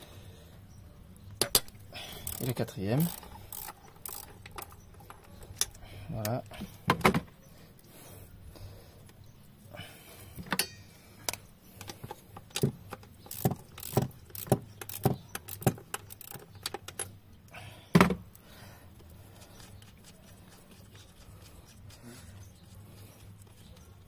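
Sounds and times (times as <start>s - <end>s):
ratchet clicking: 1.4s - 5.0s, 12.5s - 17.1s.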